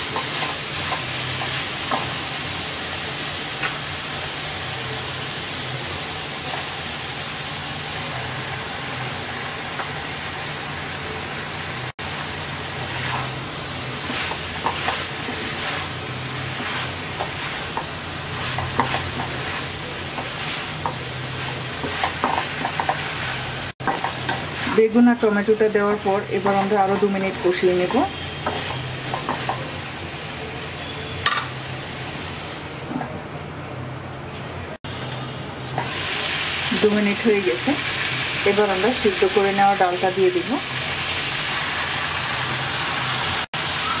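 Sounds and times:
food sizzling in a wok: 0.0s - 44.0s
wooden spatula scraping pan: 14.0s - 24.9s.

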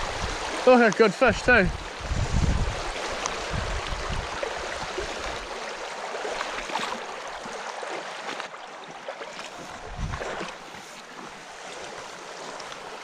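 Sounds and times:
stream running over stones: 0.0s - 13.0s.

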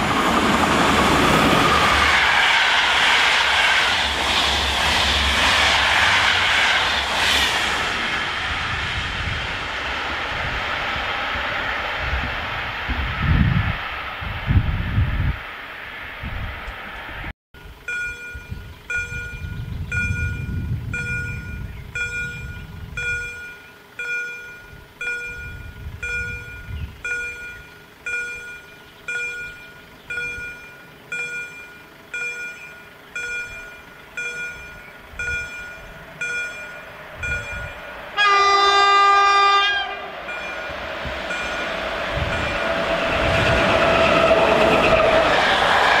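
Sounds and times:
electric train approaching: 0.0s - 46.0s
train horn: 38.1s - 40.2s.

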